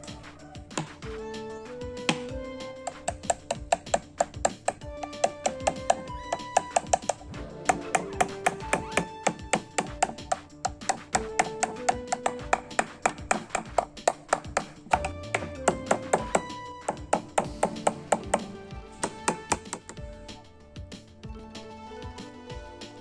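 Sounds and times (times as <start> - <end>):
fast clicking beat: 2.1 - 20.0.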